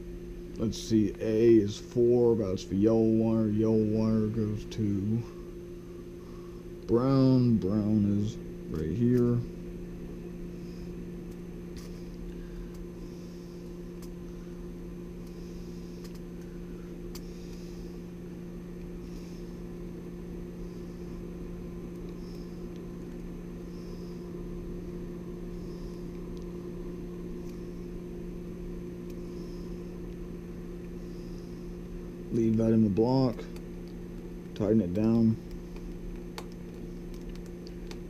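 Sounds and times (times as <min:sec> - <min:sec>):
low electrical hum: 0:00.0 - 0:38.0
wires clicking: 0:16.0 - 0:16.5, 0:32.4 - 0:38.0.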